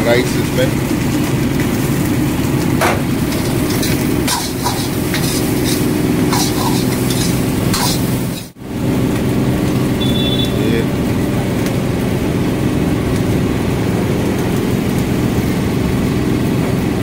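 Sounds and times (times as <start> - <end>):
steel ladle scraping a wok: 3.2 - 8.6.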